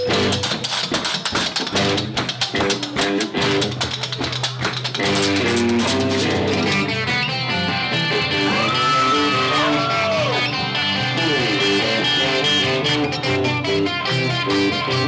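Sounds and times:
band playing: 0.0s - 4.3s, 4.9s - 15.0s
plucked guitar and banjo: 0.0s - 8.7s, 10.4s - 15.0s
washboard scraped and tapped: 0.6s - 6.6s.

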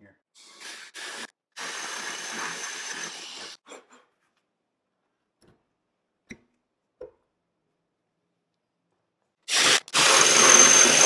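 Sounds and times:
cordless drill drilling into stone: 0.6s - 3.6s, 9.5s - 11.0s.

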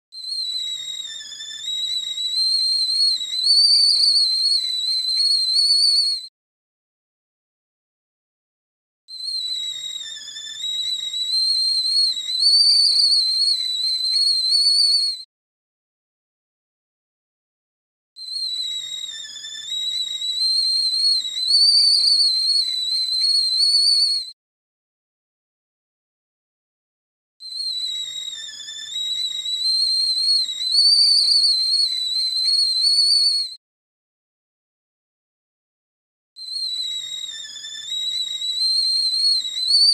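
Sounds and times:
tea kettle whistling: 0.1s - 6.3s, 9.1s - 15.3s, 18.2s - 24.4s, 27.4s - 33.6s, 36.4s - 39.9s.

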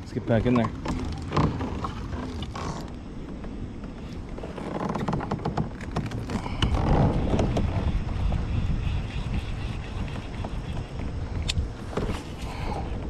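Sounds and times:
wind rumble on microphone: 0.0s - 13.0s
gear clicks and knocks: 0.4s - 8.5s.

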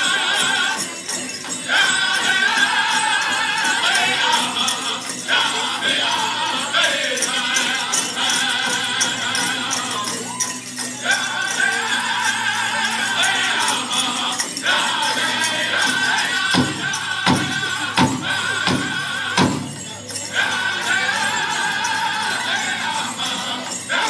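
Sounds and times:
group singing in high voices: 0.0s - 24.0s
big drum strokes: 15.2s - 19.9s.

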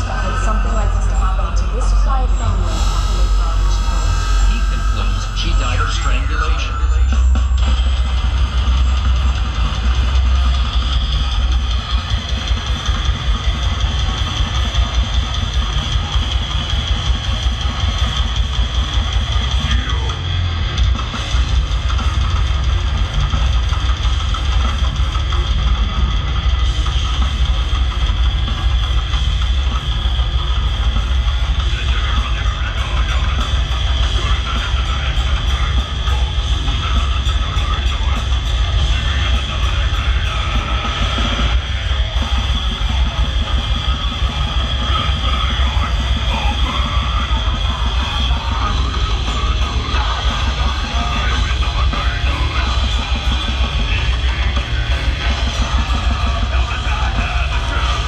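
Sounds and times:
death metal band playing: 0.0s - 58.0s
distorted electric guitars: 0.0s - 58.0s
fast drum kit: 0.0s - 58.0s.

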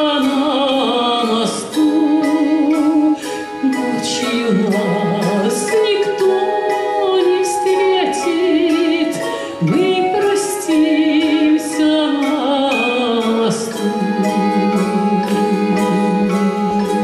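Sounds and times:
folk string orchestra playing: 0.0s - 17.0s
woman singing with vibrato: 0.0s - 17.0s.

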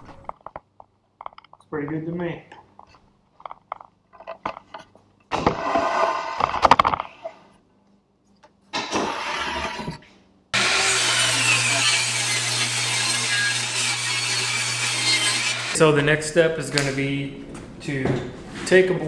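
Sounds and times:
table saw ripping board: 5.3s - 7.1s, 8.8s - 9.9s, 10.6s - 15.8s.

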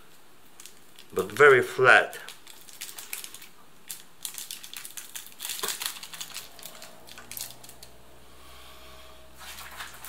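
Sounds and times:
plastic sachet crinkling: 0.4s - 7.9s.

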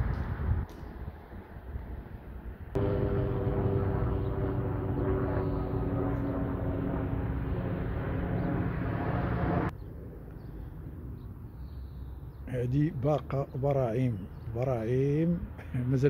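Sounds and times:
engine running with low rumble: 0.1s - 11.8s.

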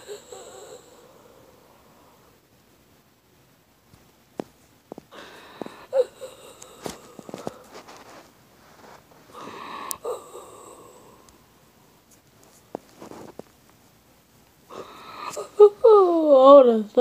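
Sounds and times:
person breathing wheezily: 0.0s - 2.4s, 5.1s - 11.5s, 14.7s - 16.0s.

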